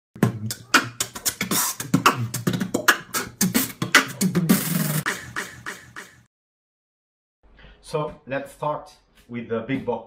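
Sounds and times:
beatboxed vocal percussion: 0.2s - 6.3s.

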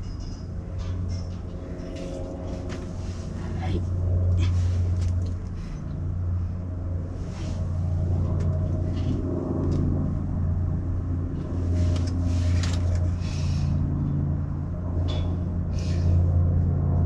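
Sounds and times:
low motor hum: 0.0s - 17.0s
rustles and light clicks: 11.4s - 13.4s.

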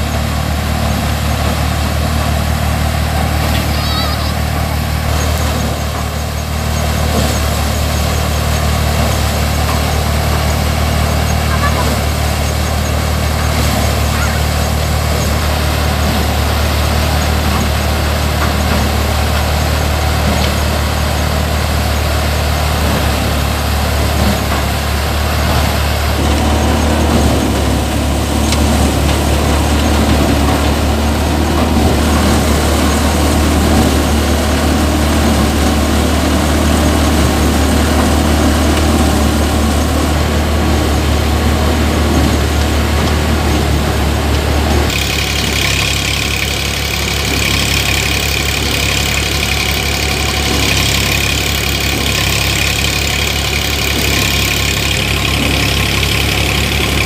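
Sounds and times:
thresher drum whirring and rattling: 0.0s - 57.0s
tractor engine running: 0.0s - 57.0s
coarse rattle: 44.9s - 57.0s.

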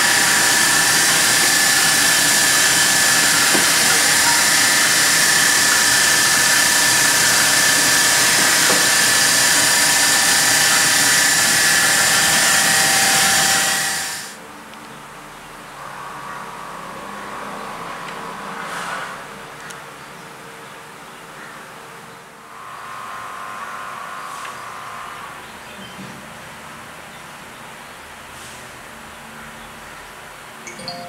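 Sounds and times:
shot blasting machine hissing: 0.0s - 14.4s
motor hum: 0.0s - 18.7s, 22.4s - 26.2s
steady high tone: 30.7s - 31.0s.

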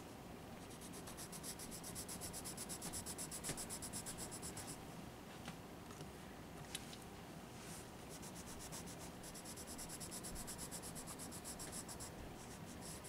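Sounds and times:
pencil scratching on paper: 0.7s - 4.8s, 8.1s - 13.0s.

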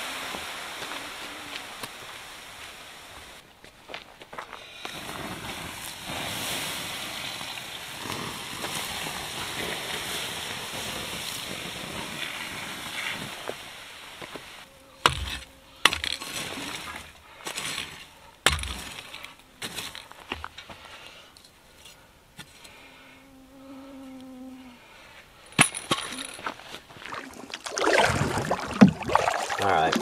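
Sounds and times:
water hissing on hot coals: 0.0s - 3.4s, 4.7s - 15.2s, 16.2s - 20.1s
metal shovel scraping rocks: 15.0s - 20.7s.

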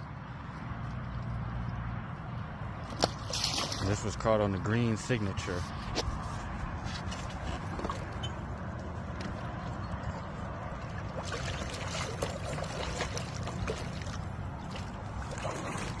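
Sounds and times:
water splashing against boat: 2.8s - 6.0s, 6.8s - 9.5s, 10.7s - 16.0s.

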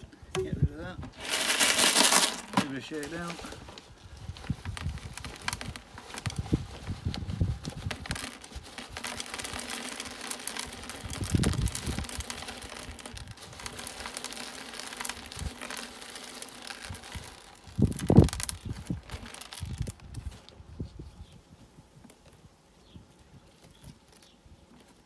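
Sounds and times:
gritty ballast trickling into plastic: 0.3s - 20.8s
plastic bag crinkling: 1.0s - 20.5s.

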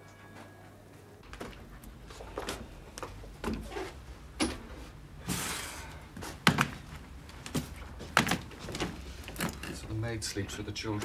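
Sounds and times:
luggage handling: 1.2s - 5.5s, 6.2s - 10.0s.

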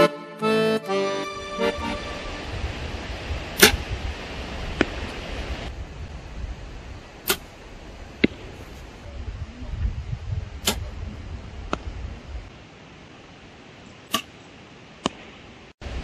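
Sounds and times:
arrow striking target: 3.6s - 3.9s, 7.2s - 7.5s, 10.6s - 10.9s, 14.1s - 14.3s.

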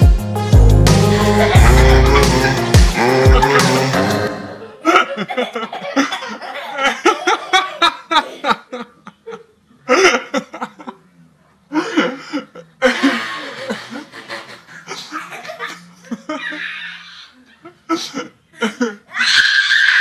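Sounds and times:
baby laughing: 1.2s - 8.4s.

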